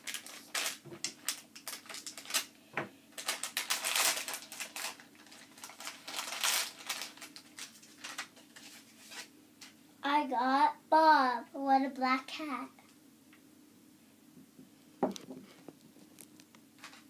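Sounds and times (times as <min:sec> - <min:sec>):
foil wrapper crinkling: 0:00.0 - 0:09.3.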